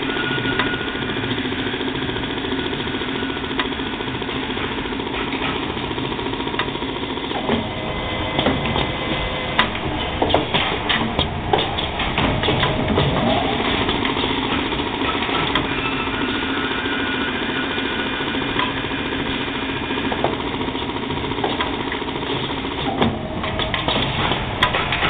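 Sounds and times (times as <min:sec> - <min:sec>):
lathe whirring: 0:00.0 - 0:25.0
sharp clicks and clatter: 0:00.5 - 0:07.6, 0:08.3 - 0:15.8, 0:18.0 - 0:25.0
high whining tones: 0:07.4 - 0:20.0.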